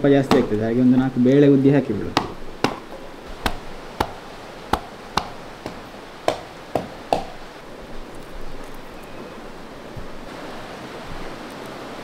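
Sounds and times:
sharp knocks cracking seeds: 2.1s - 7.4s.

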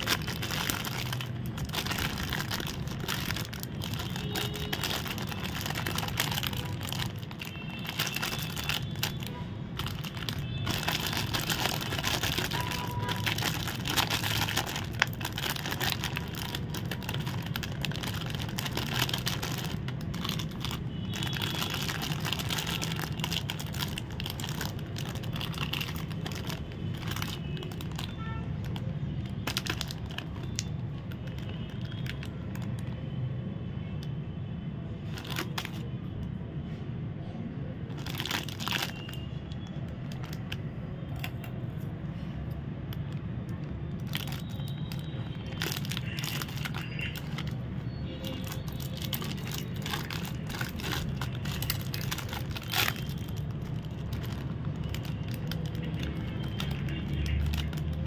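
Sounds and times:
plastic wrappers crinkling: 0.0s - 33.1s, 35.0s - 36.0s, 37.8s - 58.0s.

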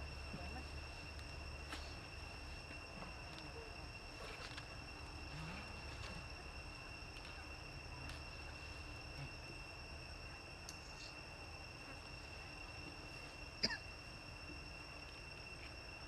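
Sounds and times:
insects chirring: 0.0s - 16.0s
faint clicks: 10.6s - 11.2s.

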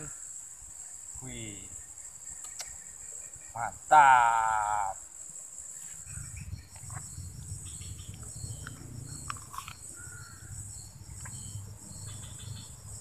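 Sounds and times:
insect chirping: 0.0s - 13.0s
insects buzzing: 0.0s - 13.0s.

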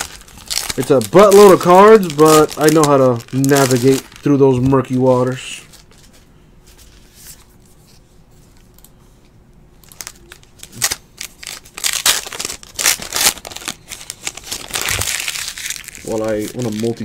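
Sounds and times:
card packs crinkling and snapping: 0.0s - 6.2s, 9.8s - 17.0s.

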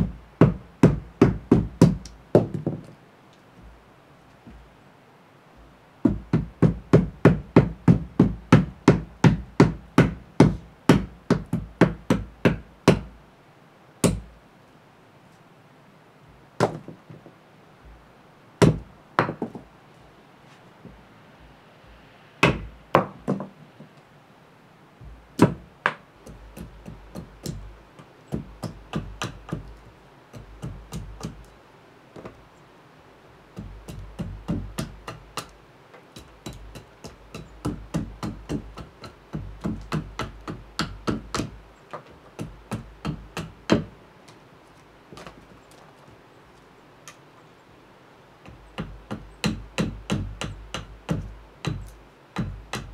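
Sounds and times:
axe chopping wood: 0.0s - 2.9s, 6.1s - 13.1s, 14.0s - 14.3s, 16.6s - 17.0s, 18.6s - 19.6s, 22.4s - 23.5s, 25.4s - 31.5s, 33.6s - 35.6s, 36.2s - 43.9s, 48.5s - 52.9s.

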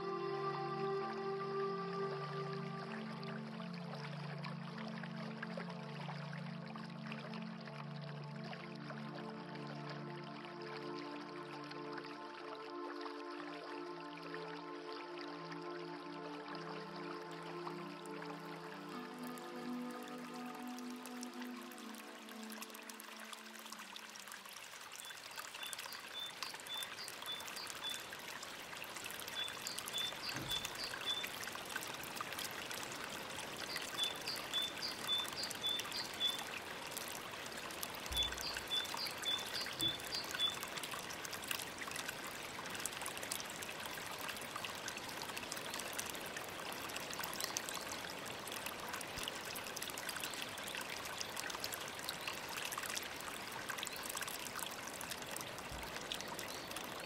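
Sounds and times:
running water splashing: 16.6s - 57.0s.

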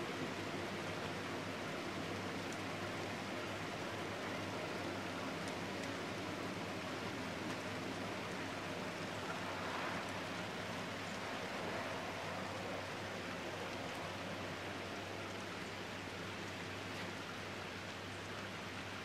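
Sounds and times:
steady rain: 0.0s - 19.0s.

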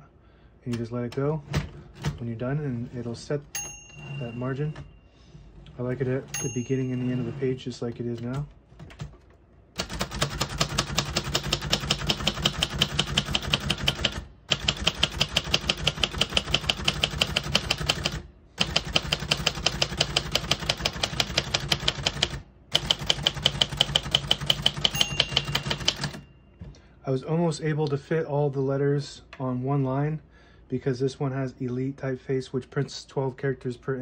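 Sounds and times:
typewriter bell ding: 3.5s - 5.0s, 6.3s - 7.5s, 22.8s - 26.5s
typewriter keystrokes: 9.8s - 26.2s.

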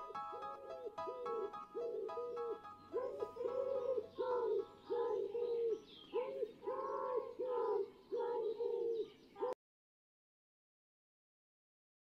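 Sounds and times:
woman singing wordless cooing notes: 2.9s - 8.7s.

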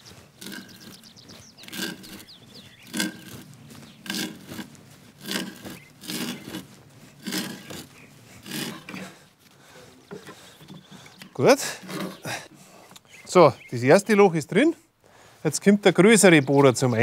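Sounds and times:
hand auger creaking into wood: 0.0s - 13.1s.

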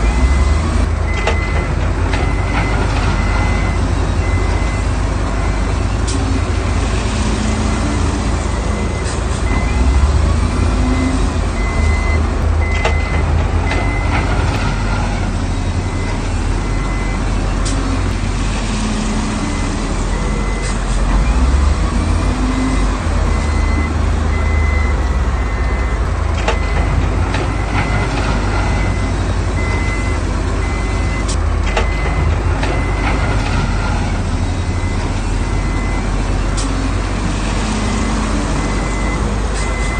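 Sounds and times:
heavy diesel machinery engines: 0.0s - 39.9s
reverse warning beeper: 10.9s - 15.0s.

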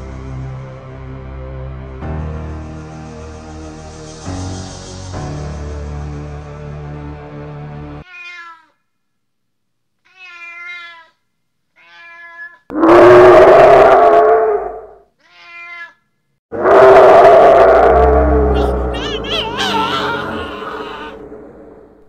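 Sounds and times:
music: 0.0s - 8.0s, 18.6s - 21.0s
cat meowing: 8.0s - 8.8s, 10.0s - 11.2s, 11.8s - 12.7s, 15.2s - 16.0s, 18.6s - 21.2s
cat yowling: 8.0s - 8.8s, 10.0s - 11.2s, 11.8s - 12.7s, 15.2s - 16.0s, 18.5s - 21.2s.

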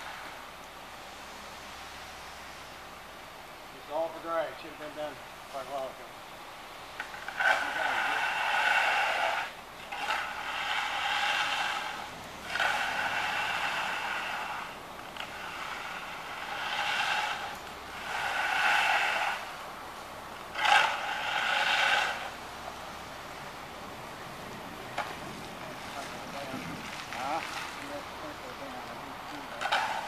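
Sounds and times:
concrete tool scraping slab: 7.0s - 19.6s, 20.4s - 22.4s, 29.3s - 30.0s.

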